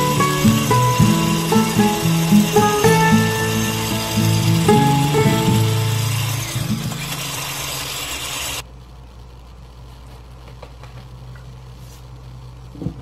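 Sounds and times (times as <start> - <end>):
electric hand mixer running: 0.0 - 8.6.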